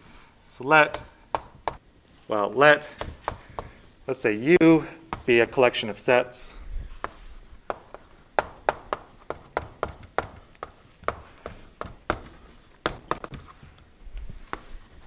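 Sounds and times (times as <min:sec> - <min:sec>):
chalk scratching: 0:00.0 - 0:06.0, 0:06.8 - 0:13.7, 0:14.3 - 0:15.0
chalk tapping on chalkboard: 0:00.8 - 0:01.8, 0:02.5 - 0:04.0, 0:05.1 - 0:05.6, 0:07.0 - 0:13.8, 0:14.4 - 0:15.0.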